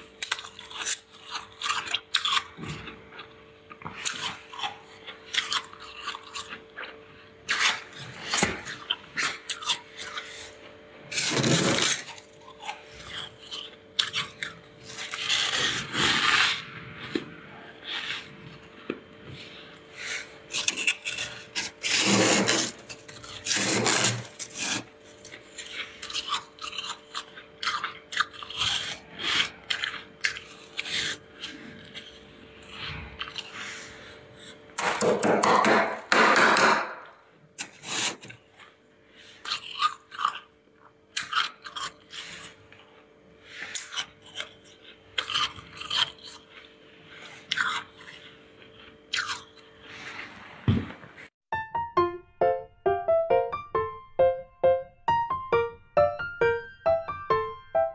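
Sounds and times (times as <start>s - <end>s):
frost crunching between teeth: 0.1s - 10.4s, 24.3s - 33.5s, 39.4s - 40.5s, 41.1s - 42.6s, 43.7s - 46.5s, 49.1s - 49.7s
frost being scraped: 11.1s - 12.1s, 14.8s - 16.6s, 19.5s - 24.9s.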